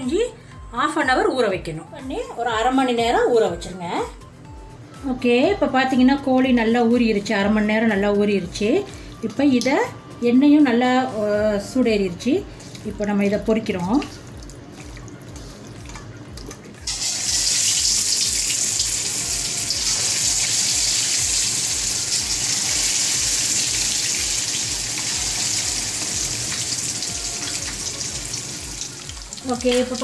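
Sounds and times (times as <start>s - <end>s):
chicken sizzling in hot oil: 16.8s - 30.0s.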